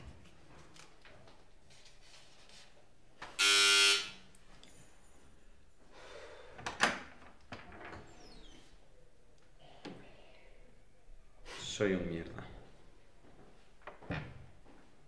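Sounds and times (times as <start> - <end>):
electric doorbell buzzing: 3.4 - 4.2.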